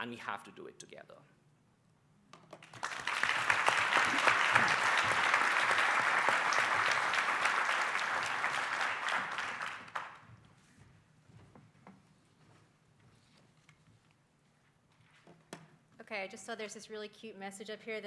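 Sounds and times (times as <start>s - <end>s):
audience applauding: 2.6s - 10.3s.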